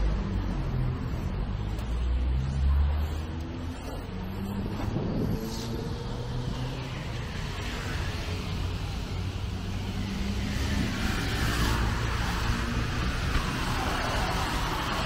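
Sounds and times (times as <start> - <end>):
cars and motorbikes passing: 0.0 - 15.0.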